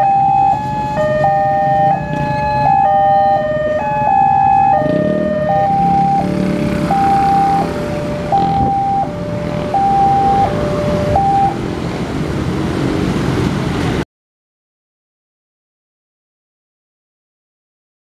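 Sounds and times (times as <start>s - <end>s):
two-tone crossing alarm: 0.0s - 11.6s
motorcycle and car engines: 0.0s - 14.0s.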